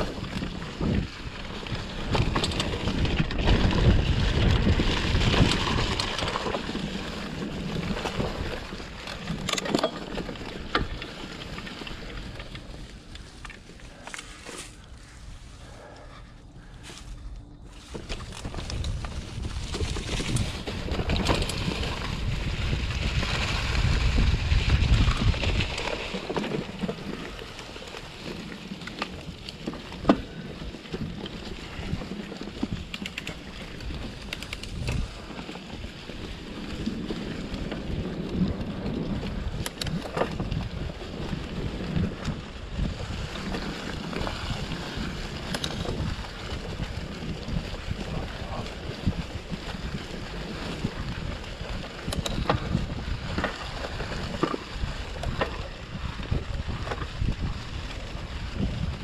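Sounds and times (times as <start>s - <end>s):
wind buffeting microphone: 0.0s - 9.6s, 10.2s - 59.0s
bike rattling over bumps: 0.0s - 59.0s
tyres rolling over dry leaves: 0.0s - 59.0s.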